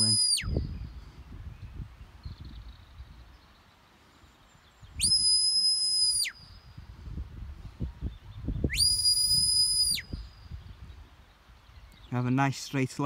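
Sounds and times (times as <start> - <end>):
high sliding whistles: 0.0 - 0.6, 5.0 - 6.6, 8.6 - 10.3.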